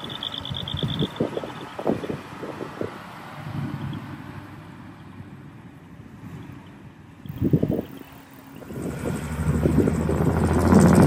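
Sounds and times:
insect singing in pulses: 0.0s - 1.8s
wind buffeting microphone: 0.0s - 4.3s, 7.3s - 11.0s
truck diesel engine passing: 0.0s - 11.0s.

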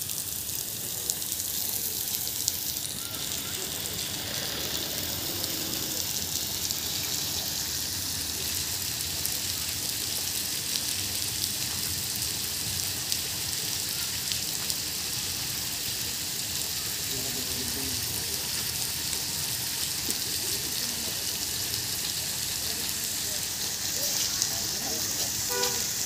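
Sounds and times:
steady rain hiss: 0.0s - 26.0s
raindrops ticking: 17.6s - 26.0s.

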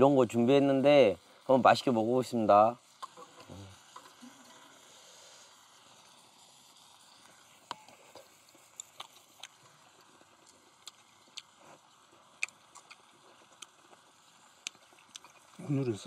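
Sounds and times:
meat sizzling on grill: 0.0s - 16.0s.

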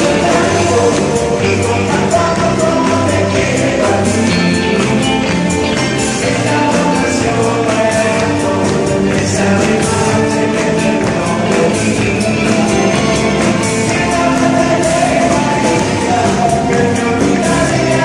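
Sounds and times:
man singing: 0.0s - 18.0s
rock band playing: 0.0s - 18.0s.

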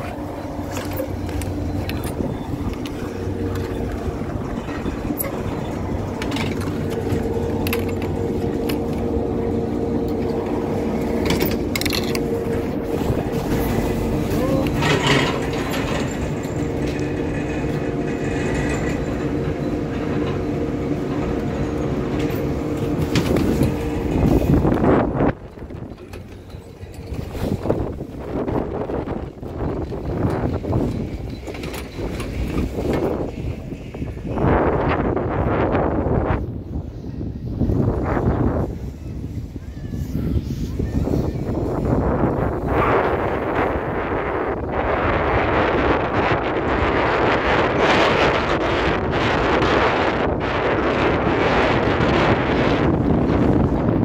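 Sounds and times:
chairs clicking and knocking: 0.0s - 9.2s
chairlift machinery humming: 0.0s - 54.0s.

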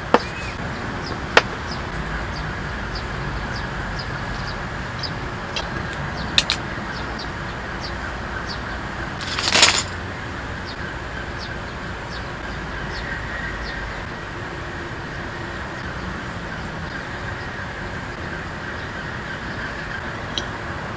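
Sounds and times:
small birds chirping: 0.0s - 14.1s
outdoor background hum: 0.0s - 20.9s.

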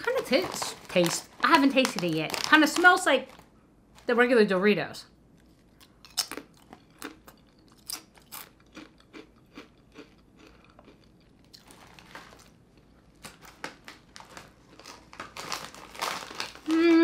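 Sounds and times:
crunchy chips being chewed: 5.4s - 16.8s.

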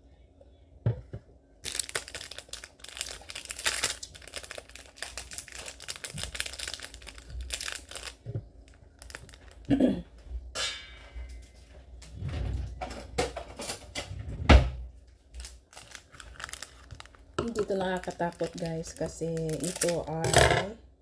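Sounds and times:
plastic bottle crackling: 1.6s - 9.7s, 15.4s - 20.4s.

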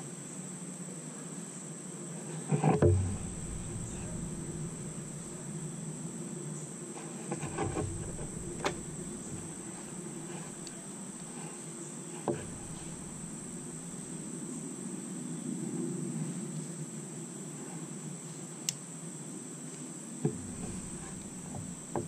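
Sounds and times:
insects chirring: 2.4s - 14.9s, 20.2s - 22.0s.

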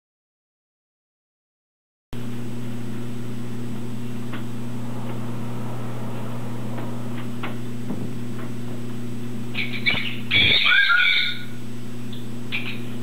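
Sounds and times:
thin high whine: 2.2s - 8.4s
steady low hum: 2.2s - 13.0s.

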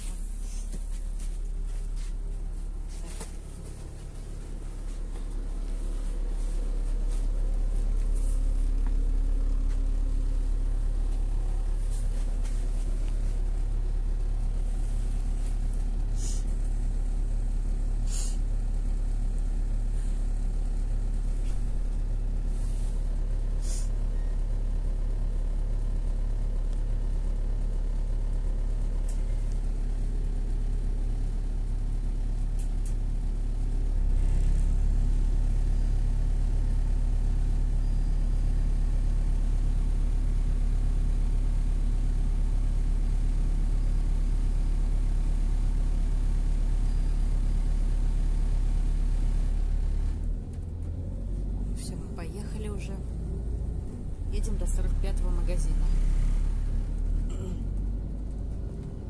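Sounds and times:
bus engine idling: 0.0s - 59.0s
short hisses: 16.2s - 16.5s, 18.0s - 18.4s, 23.6s - 23.9s.

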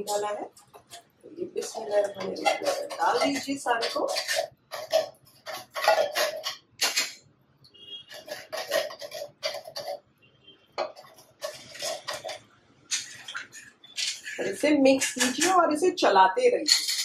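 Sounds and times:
metal spoon scraping tin can: 1.6s - 7.2s, 8.0s - 10.0s, 10.8s - 15.6s, 16.6s - 17.0s.

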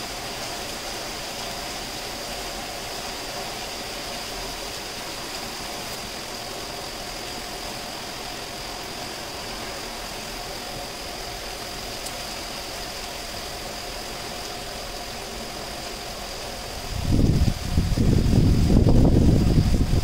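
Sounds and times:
faint steady hum: 0.0s - 20.0s
heavy rain pouring: 0.0s - 20.0s.

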